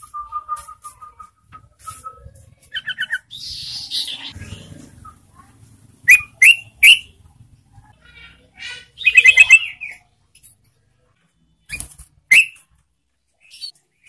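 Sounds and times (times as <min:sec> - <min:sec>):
loud sharp bird chirps: 0:02.7 - 0:05.2, 0:06.0 - 0:07.2, 0:08.8 - 0:10.1, 0:11.7 - 0:12.7
bulbul singing: 0:06.0 - 0:07.3, 0:08.8 - 0:10.1, 0:11.7 - 0:12.7.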